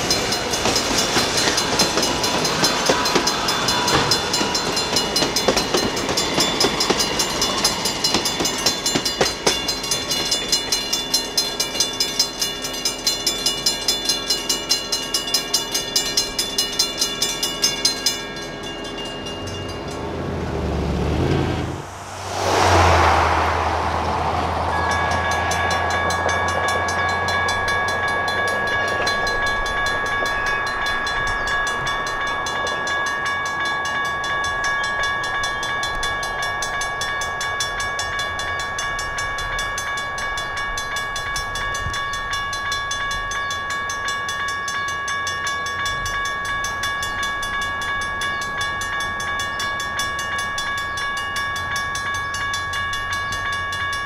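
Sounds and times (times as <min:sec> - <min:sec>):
railroad crossing bell ringing: 0:00.0 - 0:20.8, 0:21.4 - 0:54.0
train rumbling past: 0:00.0 - 0:54.0
train horn: 0:24.4 - 0:27.7.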